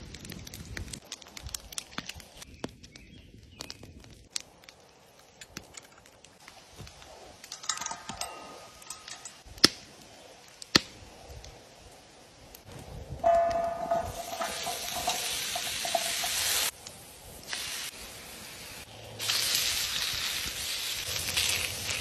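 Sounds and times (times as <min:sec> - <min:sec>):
campfire crackling: 0:00.0 - 0:22.0
logs set onto fire: 0:03.6 - 0:11.9, 0:12.5 - 0:18.2
metal chain clinking: 0:07.5 - 0:09.4
sharp metallic clanks: 0:07.5 - 0:09.4, 0:13.2 - 0:16.7.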